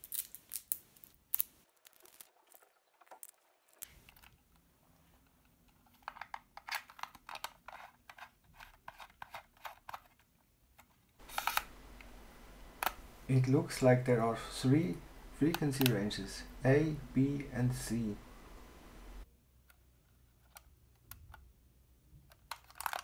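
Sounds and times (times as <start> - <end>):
antenna clicking and scraping: 10.8 - 13.6, 14.3 - 17.1.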